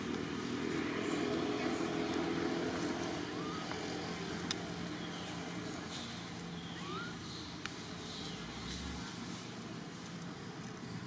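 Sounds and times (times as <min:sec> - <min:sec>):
low engine hum: 0:00.0 - 0:11.0
faint rising chirps: 0:03.0 - 0:08.6.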